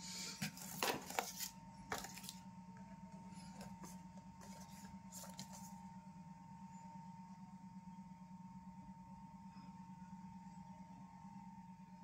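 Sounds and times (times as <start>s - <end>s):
faint steady hum: 0.0s - 12.0s
cardboard box rustling and tapping: 0.4s - 2.4s.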